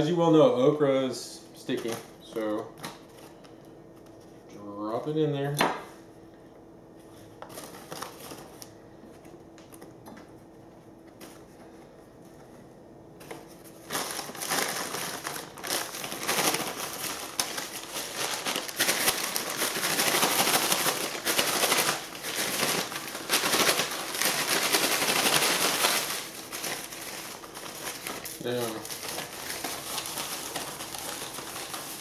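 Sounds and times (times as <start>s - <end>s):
paper bag shaken with rattle: 13.6s - 32.0s.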